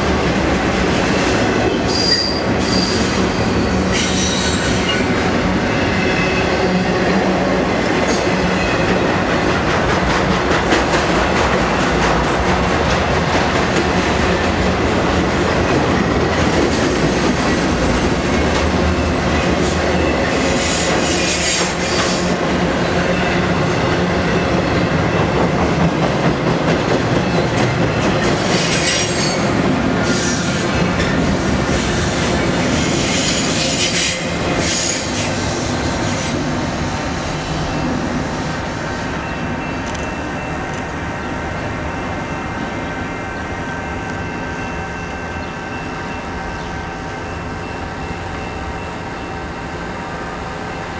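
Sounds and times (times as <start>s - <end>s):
train wheels rumbling on rails: 0.0s - 50.9s
high wheel squeal: 1.8s - 6.6s.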